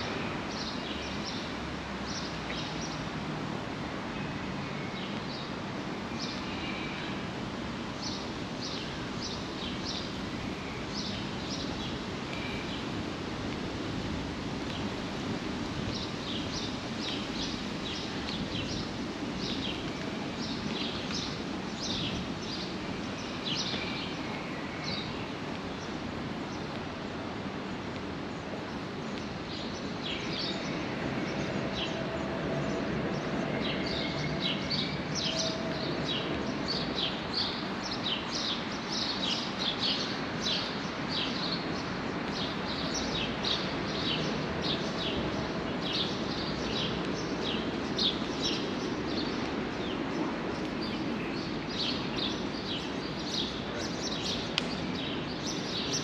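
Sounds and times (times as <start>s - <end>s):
low city rumble: 0.0s - 56.0s.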